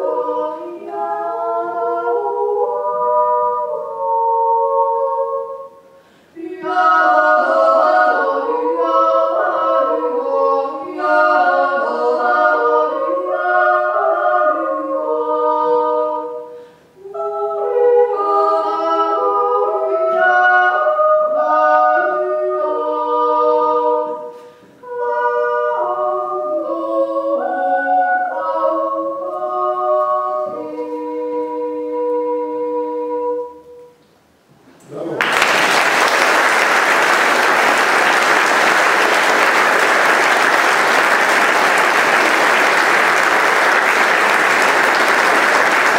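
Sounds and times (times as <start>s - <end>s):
women yodeling in harmony: 0.0s - 5.8s, 6.4s - 34.0s.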